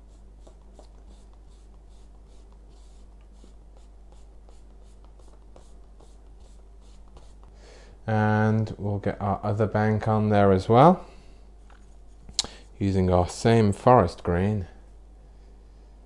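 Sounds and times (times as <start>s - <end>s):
brush swishing on paper: 0.0s - 7.5s.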